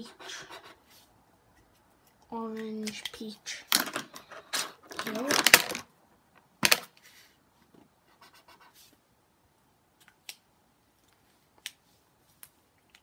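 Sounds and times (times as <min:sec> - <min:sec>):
marker scratching on paper: 0:00.0 - 0:01.1, 0:08.1 - 0:09.0.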